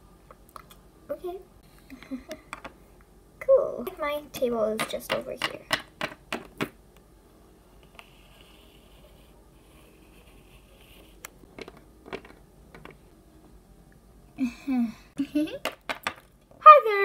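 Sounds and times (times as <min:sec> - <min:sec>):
plastic toys tapping on table: 0:02.5 - 0:02.8, 0:04.8 - 0:06.8, 0:11.6 - 0:13.0, 0:15.6 - 0:16.3.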